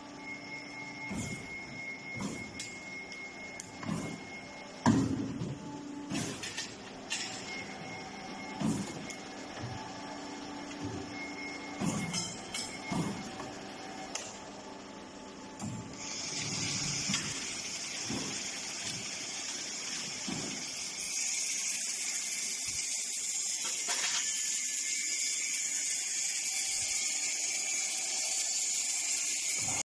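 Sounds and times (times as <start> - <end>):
machine hissing: 16.0 - 29.8.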